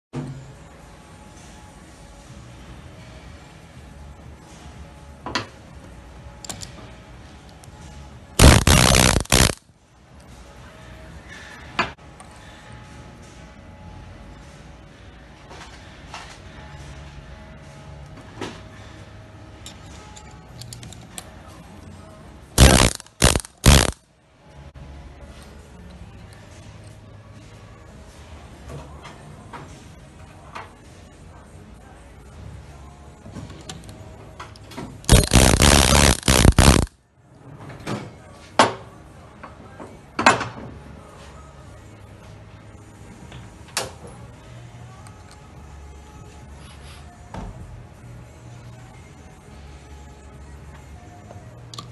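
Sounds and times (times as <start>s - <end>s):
pneumatic tool bursts: 8.4s - 9.6s, 22.6s - 24.0s, 35.1s - 36.9s.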